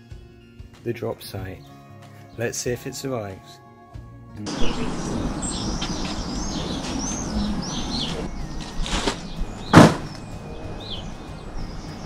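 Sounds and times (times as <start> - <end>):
birds chirping: 4.5 - 12.0
outdoor background noise: 4.5 - 12.0
thud on gravel: 8.8 - 10.2.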